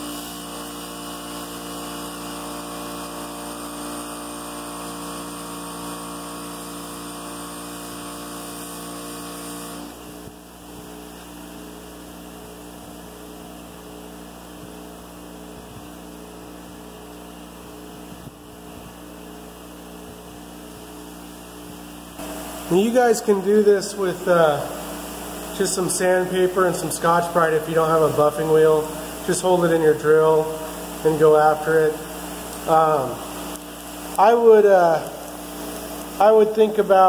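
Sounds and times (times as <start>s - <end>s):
valve polishing against wheel: 0.0s - 10.1s, 24.5s - 36.3s
bench buffer motor hum: 0.0s - 37.0s.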